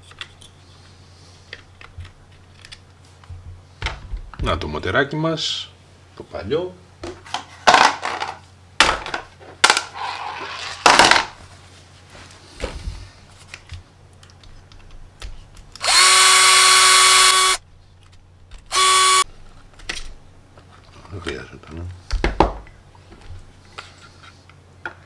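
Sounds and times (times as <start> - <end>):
plastic and metal parts clacking: 1.5 - 2.8
cordless screwdriver running: 15.8 - 17.6, 18.7 - 19.2.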